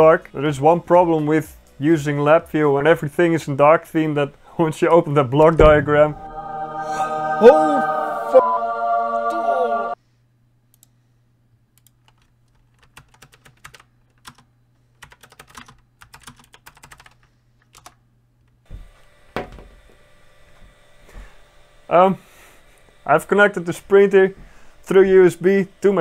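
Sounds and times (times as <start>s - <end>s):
music: 0.0s - 2.9s, 5.5s - 10.0s
room hum: 0.0s - 26.0s
thump on glass tabletop: 5.6s - 6.2s
keyboard clicks: 11.8s - 14.4s, 15.0s - 18.0s.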